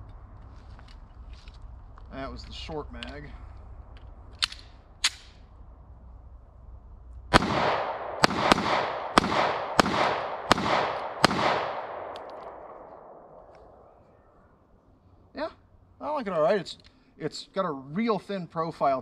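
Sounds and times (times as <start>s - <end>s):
pistol shots with echo: 7.3s - 13.9s
sharp clicks: 12.0s - 12.7s.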